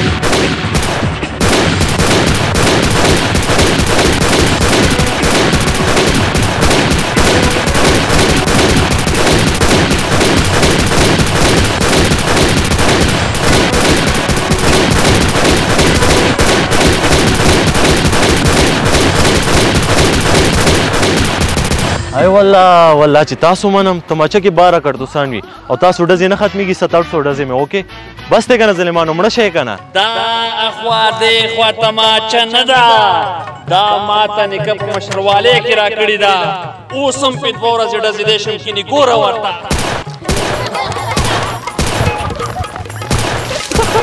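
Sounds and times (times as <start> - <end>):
pistol firing: 0.0 - 22.1, 39.7 - 42.4, 43.0 - 44.0
shotgun firing: 0.0 - 22.2, 39.7 - 42.4, 43.0 - 44.0.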